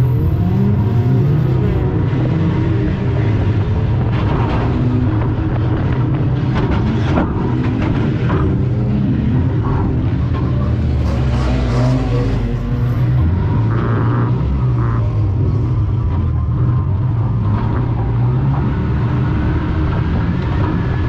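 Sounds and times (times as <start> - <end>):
car engine droning: 0.0 - 21.0
clatters and knocks: 3.9 - 11.2.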